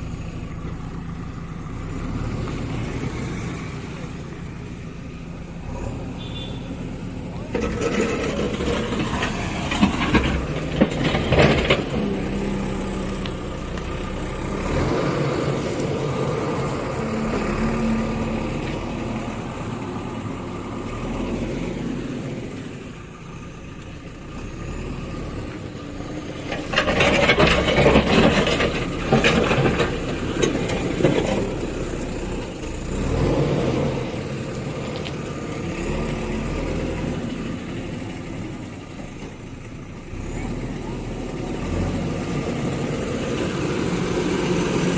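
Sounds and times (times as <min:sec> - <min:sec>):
diesel engine running under load: 0:00.0 - 0:44.9
loader bucket pushing soil: 0:00.0 - 0:44.9.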